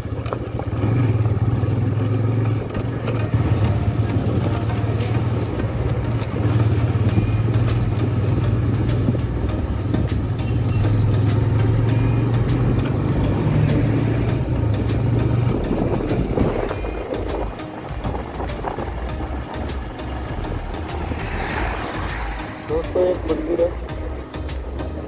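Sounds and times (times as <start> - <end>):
motorcycle engine drone: 0.0 - 25.0
wind and road noise: 0.0 - 25.0.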